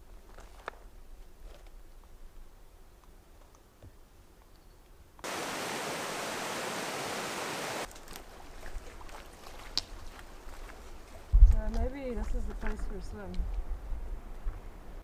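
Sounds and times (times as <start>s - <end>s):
faint outdoor ambience: 0.0s - 15.0s
stream rushing over stones: 5.2s - 10.0s.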